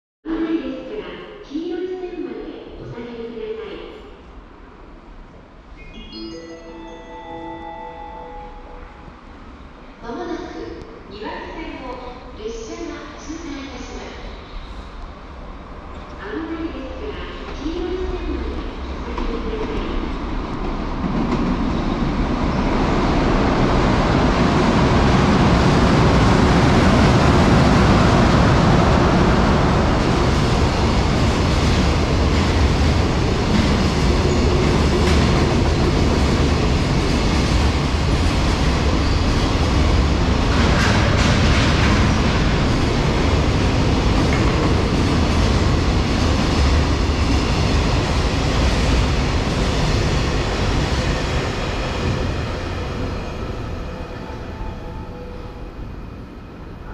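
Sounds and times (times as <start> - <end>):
electric locomotive passing: 18.3 - 56.9.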